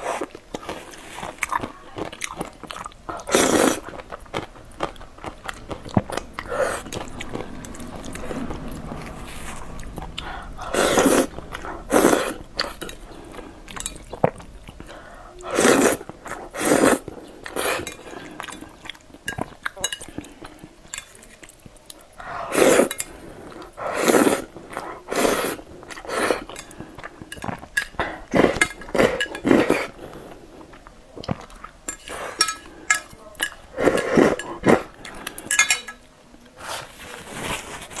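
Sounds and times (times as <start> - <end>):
chewing: 0.0 - 36.0
noodle slurping: 2.8 - 4.2, 4.9 - 18.9, 22.2 - 30.7, 33.7 - 35.6.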